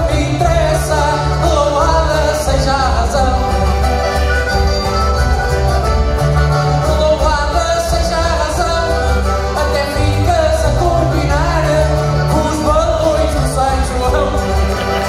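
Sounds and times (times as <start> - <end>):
folk singer singing: 0.0 - 5.2, 6.3 - 15.0
concertina playing chords: 0.0 - 10.5
bass line: 0.0 - 15.0.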